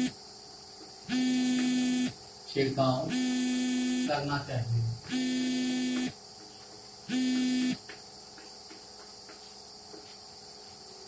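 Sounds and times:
crickets chirring: 0:00.0 - 0:11.0
buzzy horn blasts: 0:01.1 - 0:02.2, 0:07.1 - 0:07.8.

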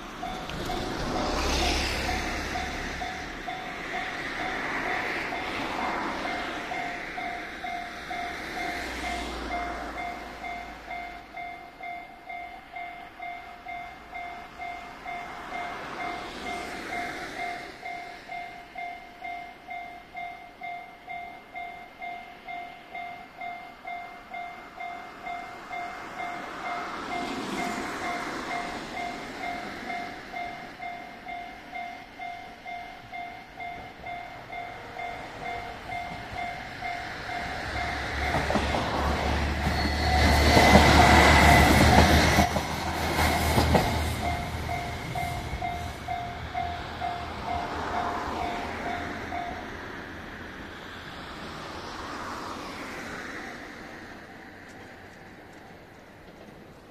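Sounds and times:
railway crossing bell ringing: 0:00.0 - 0:50.8
train engine and wheels rumbling: 0:00.0 - 0:56.9.

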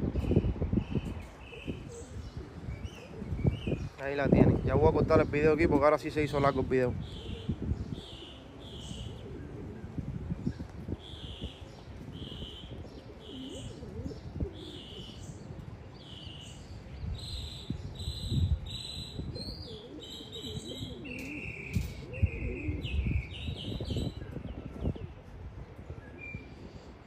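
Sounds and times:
pigeon cooing: 0:01.4 - 0:03.8, 0:07.0 - 0:10.2, 0:11.0 - 0:15.4, 0:19.2 - 0:25.3.

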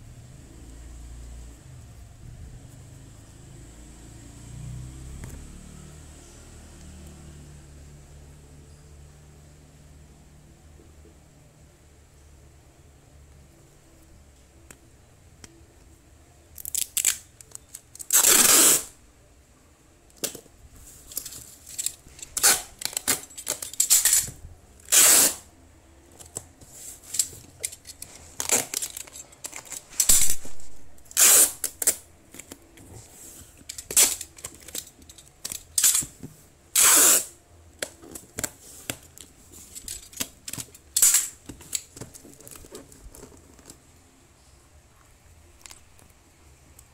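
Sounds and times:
packing tape ripping: 0:16.6 - 0:18.9, 0:21.2 - 0:25.5, 0:27.1 - 0:32.6, 0:33.7 - 0:36.1, 0:36.8 - 0:38.6, 0:39.7 - 0:43.8.

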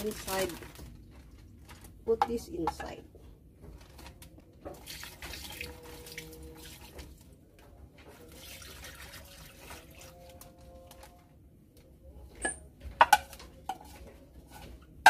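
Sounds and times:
liquid pouring into bag: 0:03.9 - 0:07.2, 0:08.1 - 0:11.2.

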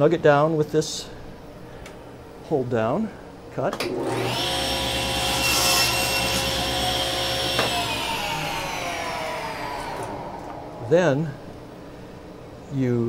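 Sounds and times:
table saw cutting wood: 0:03.9 - 0:11.4
saw blade spinning down: 0:03.9 - 0:11.5.

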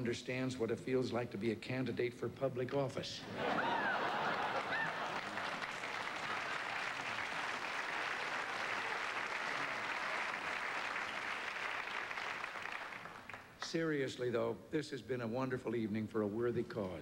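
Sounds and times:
audience applauding: 0:03.5 - 0:13.6.

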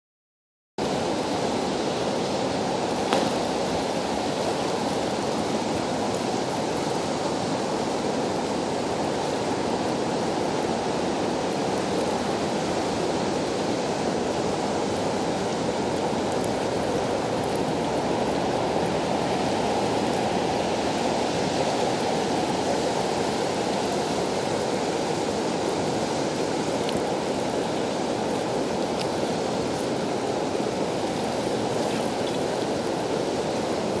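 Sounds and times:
river flowing fast: 0:00.8 - 0:34.0.

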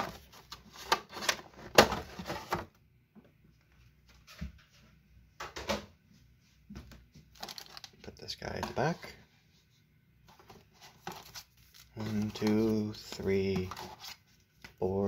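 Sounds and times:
plastic packaging clicking: 0:07.4 - 0:08.0.

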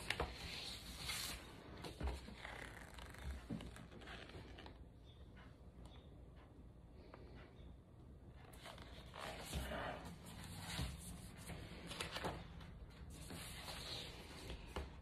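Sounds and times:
book pages rustling: 0:00.0 - 0:04.8, 0:08.5 - 0:15.0.

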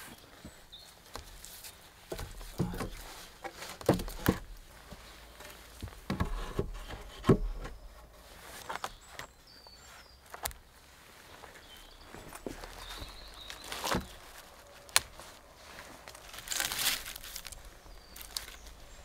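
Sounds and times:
rustling of bark and debris: 0:00.0 - 0:19.0
wooden logs knocking together: 0:02.1 - 0:09.3, 0:12.1 - 0:15.4, 0:16.1 - 0:19.0.

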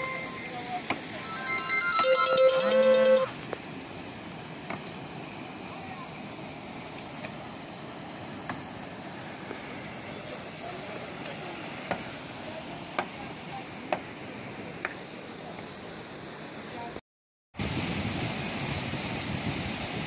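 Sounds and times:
water rushing through culvert: 0:03.0 - 0:16.9.

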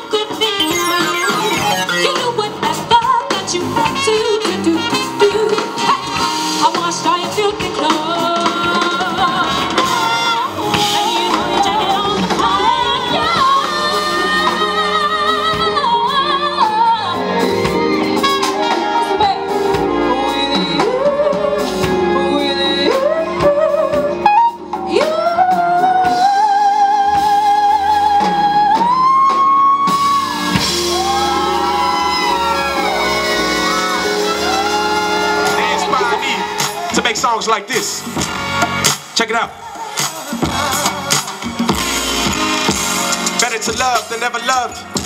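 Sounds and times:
band accompaniment: 0:00.0 - 0:45.0
woman singing soul vocal: 0:02.0 - 0:30.3.

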